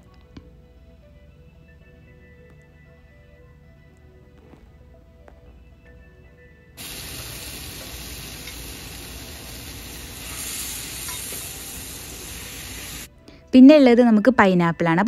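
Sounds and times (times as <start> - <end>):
meat sizzling on a grill: 6.8 - 13.1.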